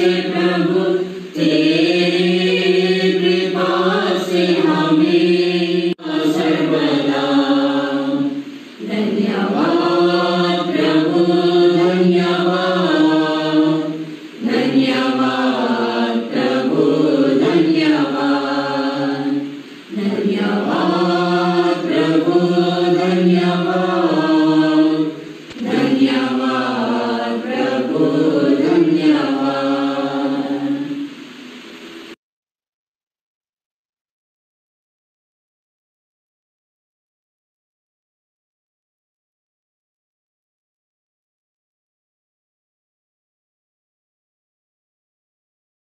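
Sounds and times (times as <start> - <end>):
group singing a hymn: 0.0 - 32.2.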